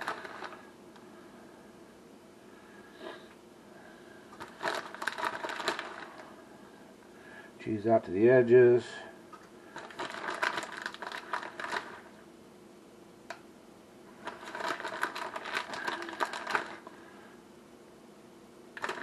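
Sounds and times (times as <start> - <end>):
cheese rustling and crinkling: 0.0 - 0.7, 4.4 - 6.5, 9.6 - 12.1, 14.2 - 17.1, 18.8 - 19.0.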